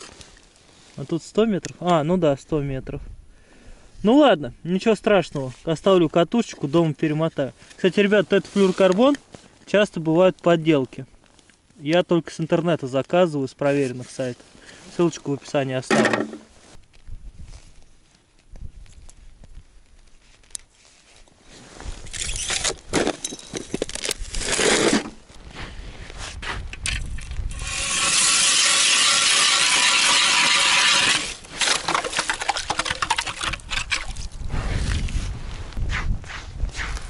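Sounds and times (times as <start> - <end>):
faint handling sounds: 5.3 - 24.4
ice auger drilling through ice: 22.1 - 25.2, 26.8 - 35.0.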